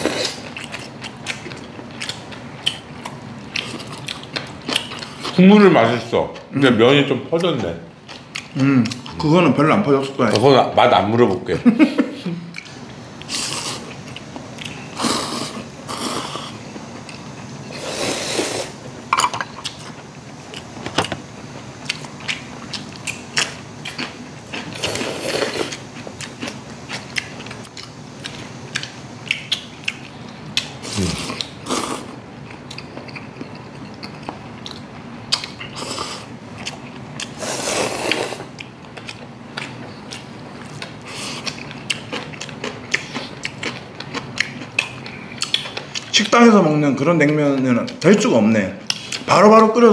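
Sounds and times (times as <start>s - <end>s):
people slurping and chewing noodles: 0.0s - 5.4s, 12.4s - 18.9s, 21.8s - 46.3s.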